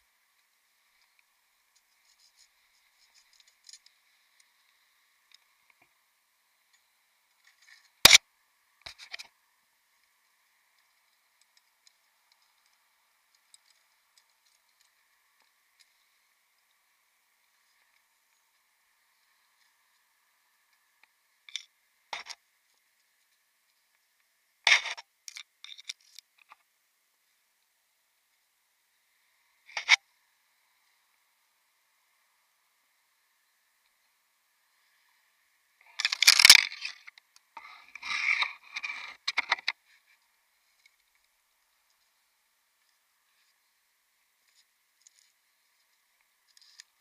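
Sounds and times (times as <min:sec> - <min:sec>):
twigs rustling and cracking: 0:00.9 - 0:05.9, 0:35.8 - 0:37.2, 0:44.4 - 0:47.0.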